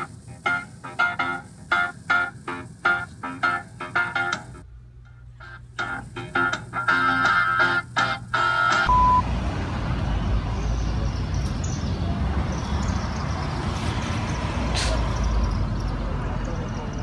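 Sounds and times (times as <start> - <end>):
music: 0.0 - 8.9
short beep: 8.9 - 9.2.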